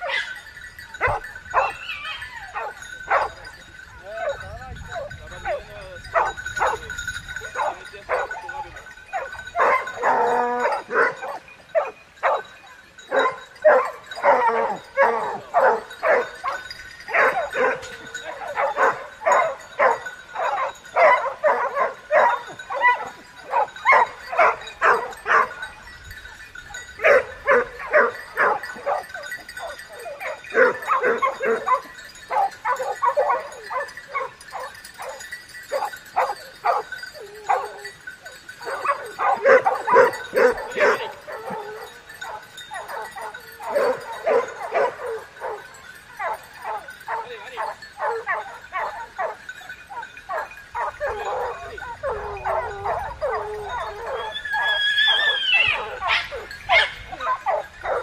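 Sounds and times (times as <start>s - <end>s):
dogs barking and yelping: 0.0s - 58.0s.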